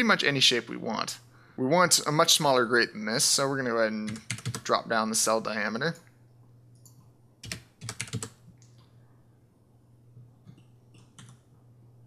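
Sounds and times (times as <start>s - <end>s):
steady low hum: 0.0s - 12.0s
keyboard keystrokes: 4.1s - 4.6s, 6.8s - 8.8s, 10.5s - 11.4s.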